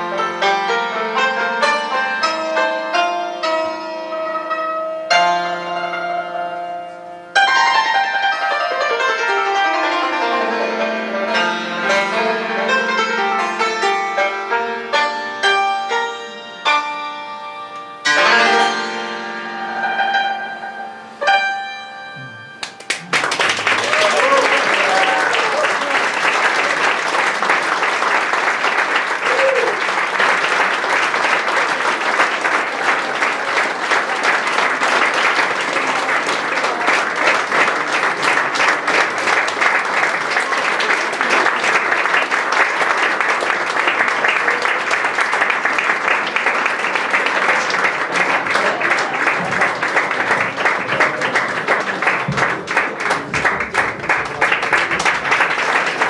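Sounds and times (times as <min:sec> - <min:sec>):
audience applauding: 0:22.2 - 0:56.0.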